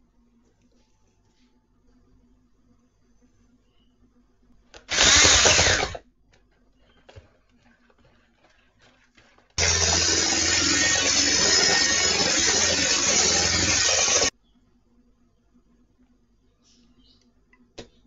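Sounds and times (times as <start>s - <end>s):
electric hand mixer whisking: 4.9s - 6.0s, 9.6s - 14.3s.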